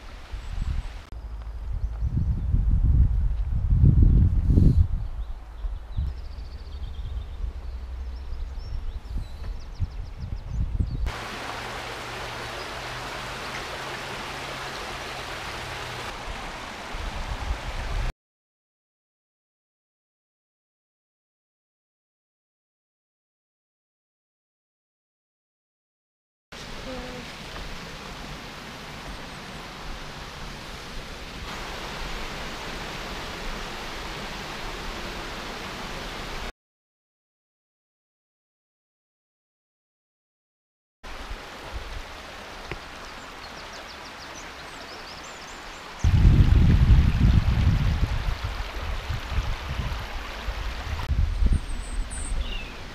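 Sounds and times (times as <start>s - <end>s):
wind buffeting microphone: 1.6s - 11.9s, 46.0s - 52.9s
stream rushing over rocks: 11.1s - 18.1s, 26.6s - 36.5s, 41.1s - 51.1s.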